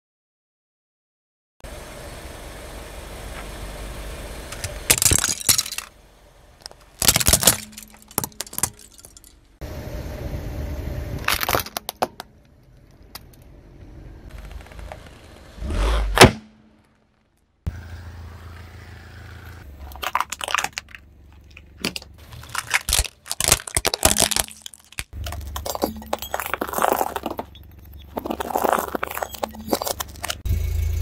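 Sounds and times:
low steady rumble: 1.7 - 31.0
tyre crushing brittle objects: 4.9 - 6.0, 6.6 - 9.4, 19.6 - 30.5.

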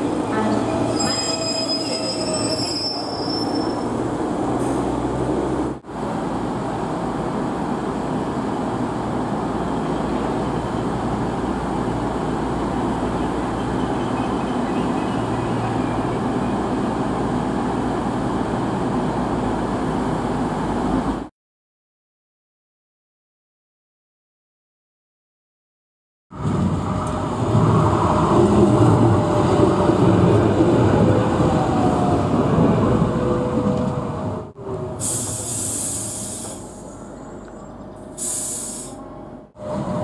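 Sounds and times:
high wheel squeal: 0.4 - 4.0
train diesel rumble: 26.5 - 40.0.

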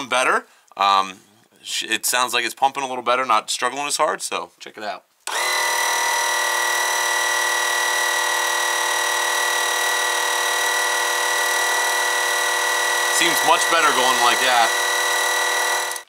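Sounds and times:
electric oil pump whining: 5.3 - 16.0.

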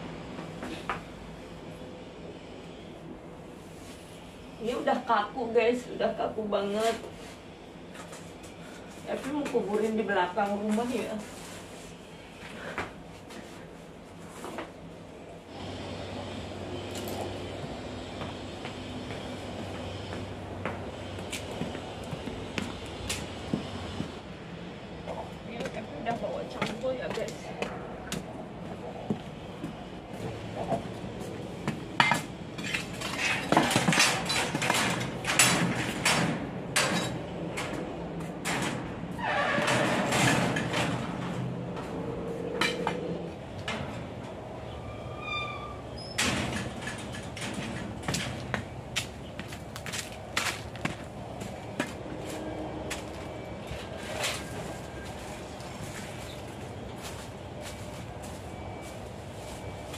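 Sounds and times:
brief high squeak: 44.8 - 46.2.

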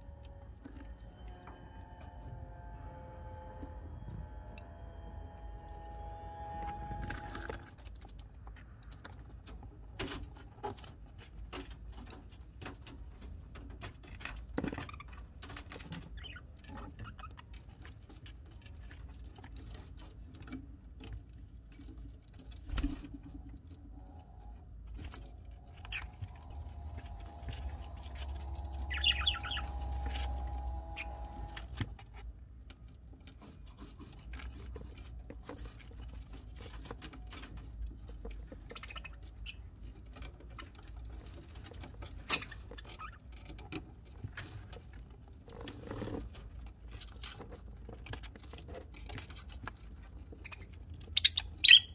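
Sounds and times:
chicks scratching in bedding: 21.7 - 32.2, 33.1 - 51.7
high chick chirp: 25.8 - 31.7.

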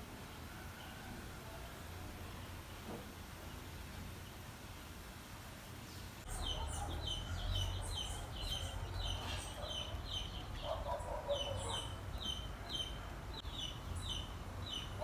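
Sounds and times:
chickens clucking: 6.3 - 15.0
chicks peeping: 6.3 - 15.0.

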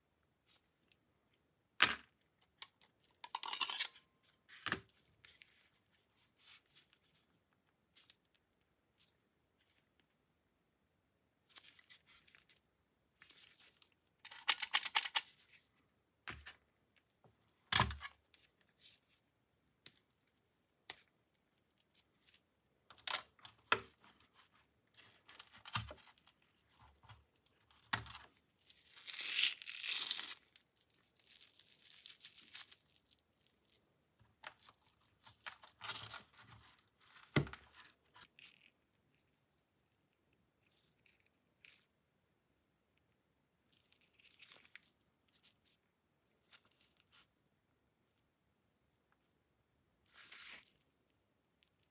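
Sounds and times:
rubber gloves rustling: 4.0 - 10.3, 11.4 - 39.6, 43.6 - 47.5, 50.0 - 51.2.

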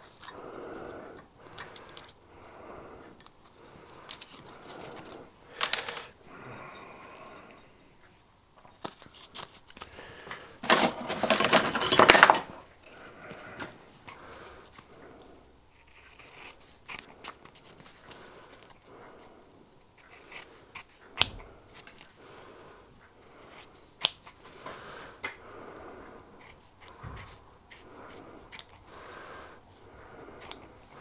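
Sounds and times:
scissors snipping paper: 1.4 - 2.6, 15.8 - 18.7, 20.0 - 22.1, 23.4 - 24.5, 26.4 - 28.9.

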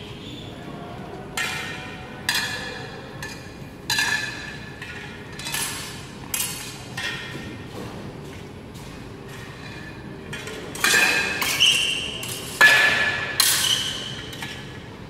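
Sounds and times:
steel swords clashing: 10.4 - 14.8.

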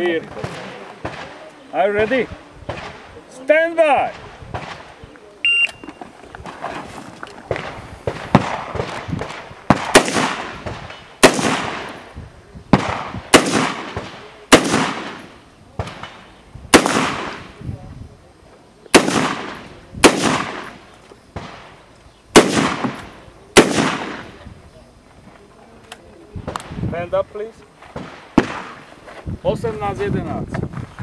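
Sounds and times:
rifle shots echoing: 0.1 - 3.1, 7.5 - 12.1, 12.7 - 17.6, 18.9 - 24.4, 28.0 - 28.8.

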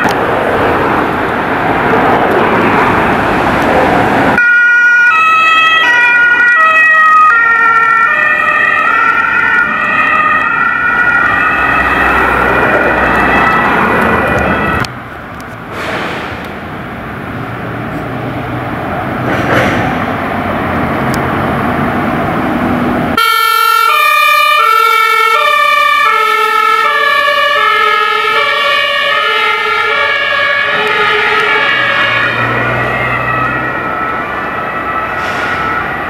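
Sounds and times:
road traffic noise: 0.0 - 36.0
two-tone emergency siren: 4.4 - 14.9, 23.2 - 36.0.

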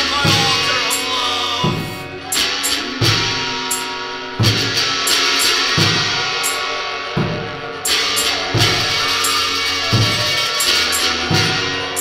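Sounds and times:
crashing cymbals: 0.0 - 12.0
noise-rock music: 0.0 - 12.0
heavy bass drum hits: 4.4 - 6.4.

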